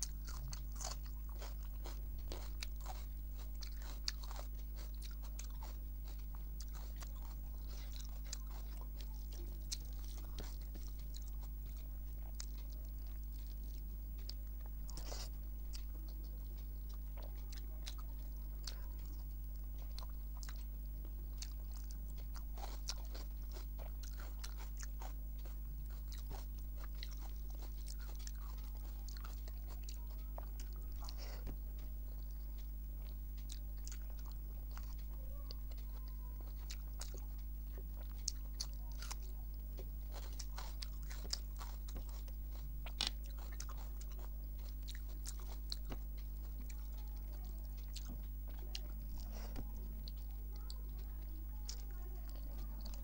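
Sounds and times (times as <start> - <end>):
person chewing food: 0.0 - 53.0.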